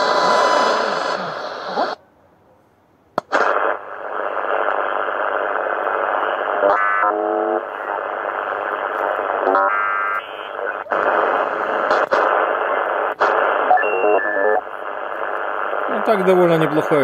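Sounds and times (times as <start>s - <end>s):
radio loudspeaker hissing: 0.0s - 2.0s, 3.3s - 17.0s
stepped radio tones: 0.0s - 2.0s, 3.3s - 17.0s
radio click: 3.2s - 15.9s.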